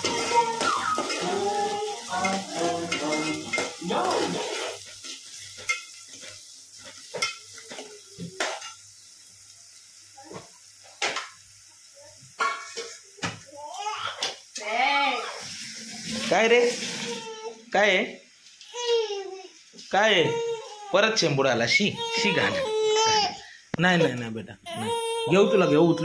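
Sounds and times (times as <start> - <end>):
metal utensil scraping pan: 0.0 - 7.8
food sizzling: 0.0 - 26.0
person speaking: 19.9 - 26.0.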